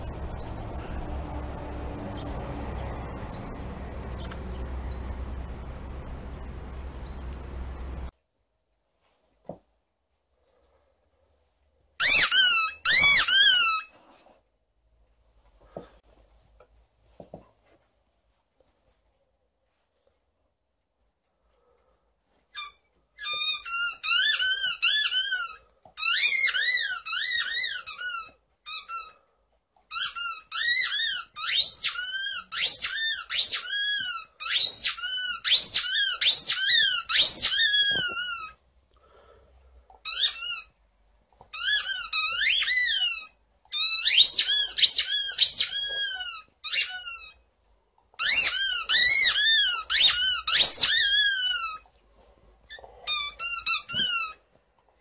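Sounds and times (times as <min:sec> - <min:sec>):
squeaky dog toy squeaking: 0:12.0 - 0:13.9, 0:22.5 - 0:29.2, 0:29.9 - 0:38.6, 0:40.0 - 0:40.8, 0:41.5 - 0:47.4, 0:48.2 - 0:51.9, 0:52.7 - 0:54.4.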